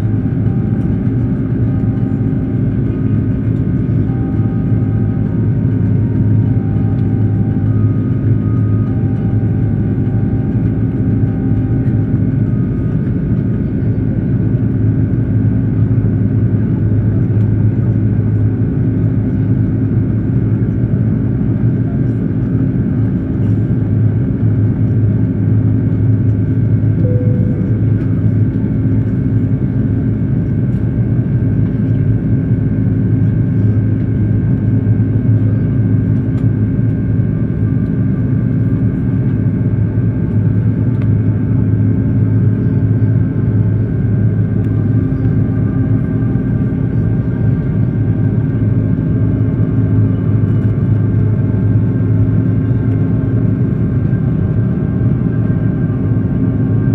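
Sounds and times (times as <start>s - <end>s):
faint steady tones: 0.0s - 14.3s, 27.0s - 30.0s
jet engine cabin roar: 0.0s - 56.9s.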